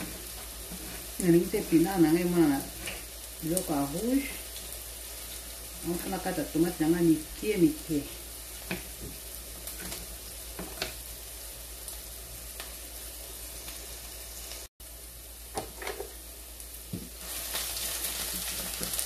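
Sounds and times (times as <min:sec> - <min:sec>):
wooden spoon stirring onions: 0:00.0 - 0:06.2, 0:08.1 - 0:11.0, 0:17.0 - 0:19.0
onions sizzling in oil: 0:00.0 - 0:19.0.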